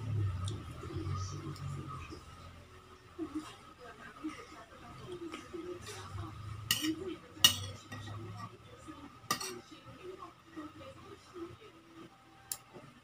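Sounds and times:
cutlery scraping on ceramic plate: 6.7s - 8.2s, 9.3s - 9.6s.

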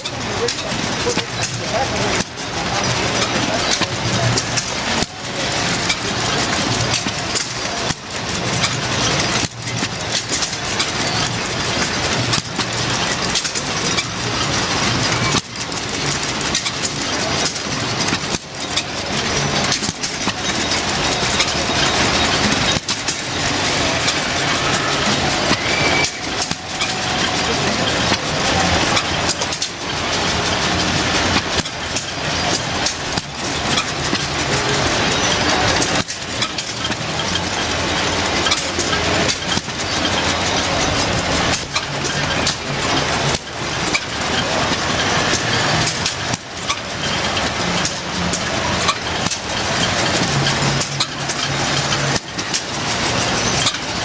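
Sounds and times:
pumping engine running: 0.0s - 54.0s.

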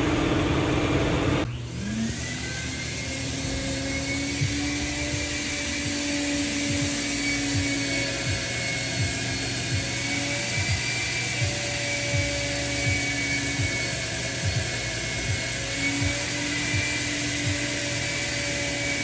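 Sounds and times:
grain probe whirring whine: 0.0s - 19.0s.

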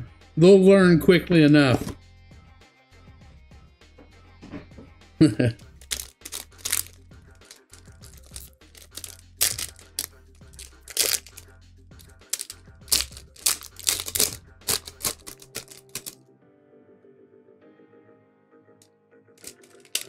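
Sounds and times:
quiet background music: 0.0s - 20.0s
foil wrapper crinkling and tearing: 5.8s - 11.4s, 12.2s - 16.2s, 19.4s - 20.0s.

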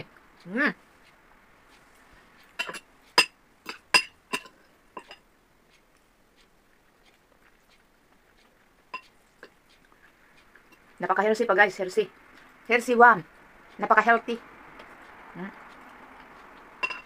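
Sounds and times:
cutlery clinking on glass bowl: 2.6s - 5.2s, 16.8s - 17.0s.

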